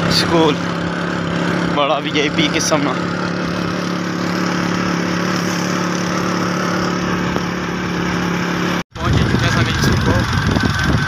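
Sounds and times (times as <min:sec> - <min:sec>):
motorcycle engine running: 0:00.0 - 0:11.0
wind and road noise: 0:00.0 - 0:11.0.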